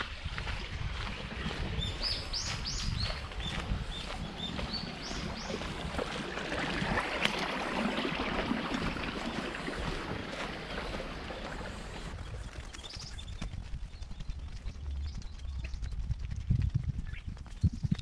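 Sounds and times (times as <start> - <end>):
water rushing along a channel: 0.0 - 13.5.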